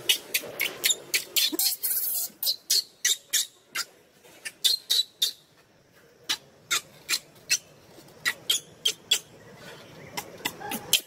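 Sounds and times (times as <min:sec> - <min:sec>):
baby monkey squealing: 0:00.1 - 0:05.4, 0:06.3 - 0:09.3.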